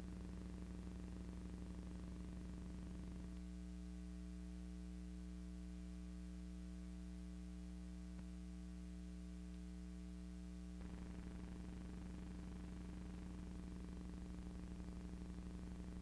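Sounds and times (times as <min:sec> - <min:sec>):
electrical hum with hiss: 0:00.0 - 0:16.0
faint click: 0:08.1 - 0:08.3.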